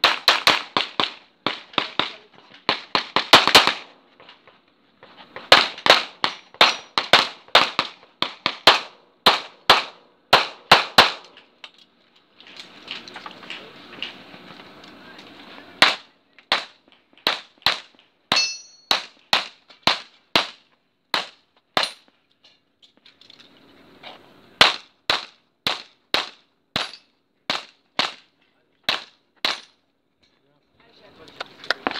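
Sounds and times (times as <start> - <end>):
pistol shots: 0.0 - 3.9, 5.5 - 11.3.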